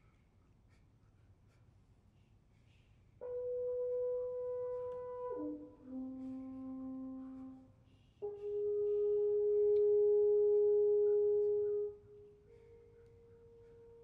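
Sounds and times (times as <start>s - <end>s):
french horn held notes: 3.2s - 14.0s.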